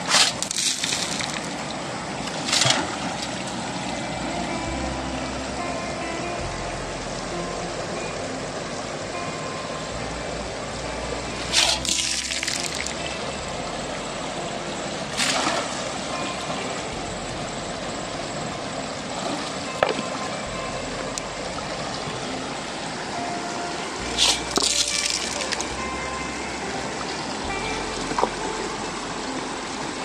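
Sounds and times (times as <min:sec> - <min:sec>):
gravel splashing into water: 0:00.0 - 0:01.5, 0:11.5 - 0:13.0, 0:24.2 - 0:25.7
water rushing through sluice box: 0:00.0 - 0:04.4, 0:10.5 - 0:30.0.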